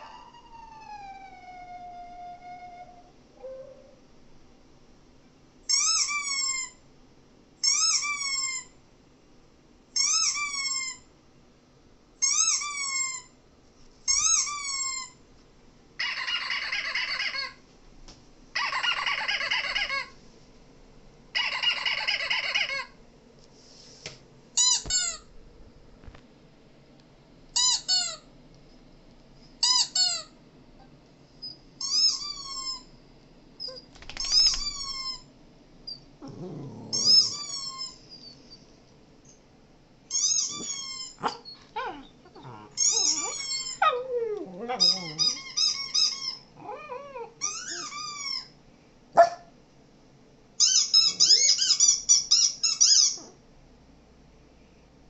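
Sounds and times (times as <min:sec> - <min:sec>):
dog whimpering and yelping: 0:00.0 - 0:04.0, 0:05.7 - 0:06.8, 0:07.6 - 0:08.8, 0:16.0 - 0:17.6, 0:18.6 - 0:20.2, 0:21.4 - 0:23.0, 0:35.9 - 0:38.6, 0:40.1 - 0:48.6, 0:50.6 - 0:53.4.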